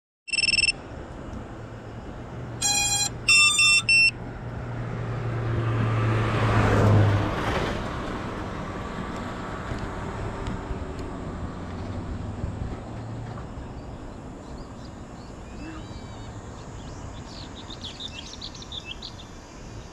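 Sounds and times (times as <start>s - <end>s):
electronic beeps: 0.3s - 0.8s, 2.6s - 4.2s
car driving past: 4.4s - 14.9s.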